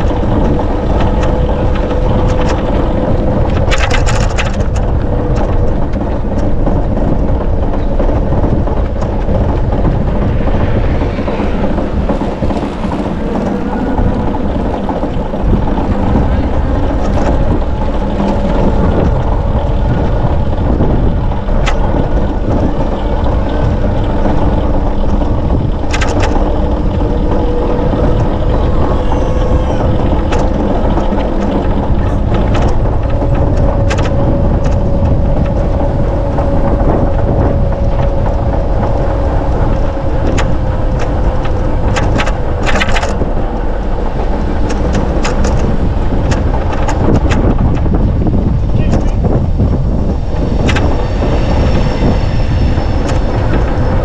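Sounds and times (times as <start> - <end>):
faint wavering hum: 0.0 - 54.0
sharp clicks and rattles: 0.0 - 54.0
wind rushing on microphone: 0.0 - 54.0.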